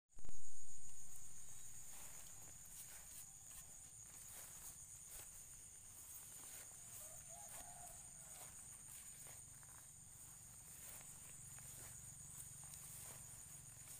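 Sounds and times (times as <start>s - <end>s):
faint clicks and rustles in grass: 0.2s - 13.9s
insects trilling: 0.2s - 13.9s.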